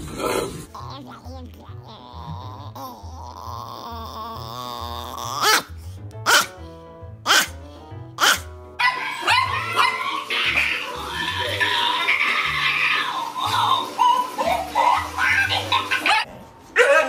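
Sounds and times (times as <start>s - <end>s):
small dog yelping barks: 5.4s - 5.7s, 6.3s - 6.5s, 7.3s - 7.6s, 8.2s - 10.1s
small dog drawn-out call: 7.3s - 7.6s, 8.2s - 10.0s.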